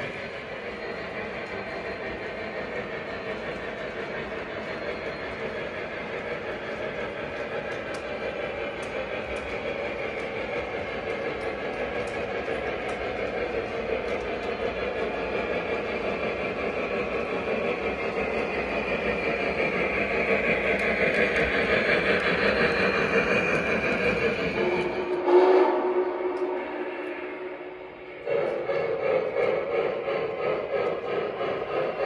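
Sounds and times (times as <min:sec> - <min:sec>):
model train running rumble: 0:00.0 - 0:32.0
faint clicks: 0:06.1 - 0:16.0.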